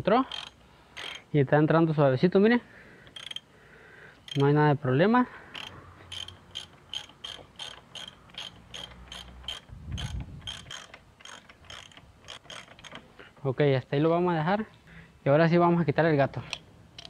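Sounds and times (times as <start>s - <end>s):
socket ratchet wrench clicking: 0.3s - 1.3s, 3.0s - 3.5s, 4.2s - 4.6s, 5.5s - 13.1s.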